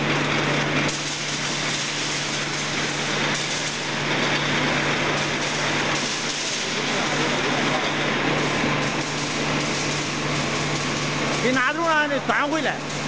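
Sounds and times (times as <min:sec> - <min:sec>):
production-line machinery running: 0:00.0 - 0:13.0.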